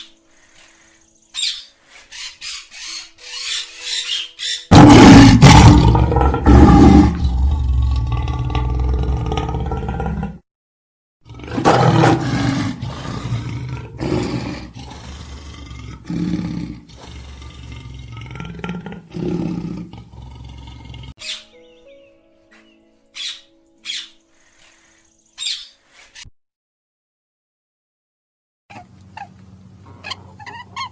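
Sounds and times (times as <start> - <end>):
tiger roaring: 4.7 - 10.4, 11.2 - 21.2.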